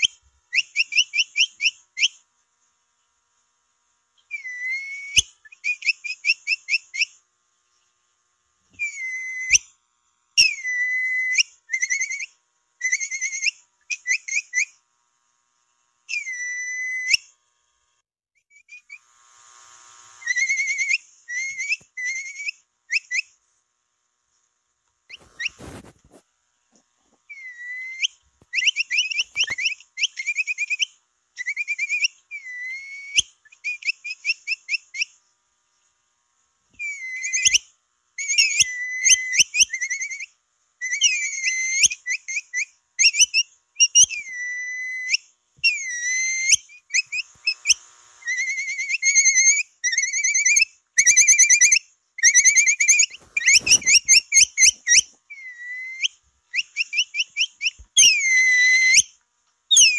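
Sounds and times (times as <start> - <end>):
capybara whistled chirps and trills: 0.0 - 2.2, 4.3 - 7.2, 8.8 - 9.7, 10.4 - 14.8, 16.1 - 17.3, 20.2 - 23.3, 27.3 - 35.2, 36.8 - 59.9.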